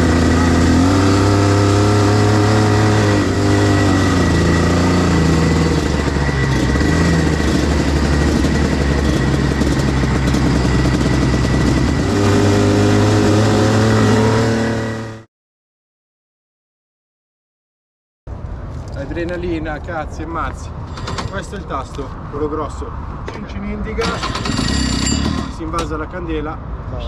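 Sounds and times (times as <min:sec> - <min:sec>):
kart engine accelerating: 0:00.0 - 0:15.3, 0:24.0 - 0:25.5.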